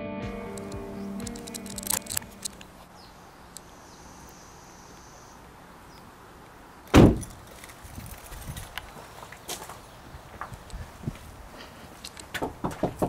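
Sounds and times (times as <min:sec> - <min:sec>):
car door thump: 0:07.0 - 0:07.2.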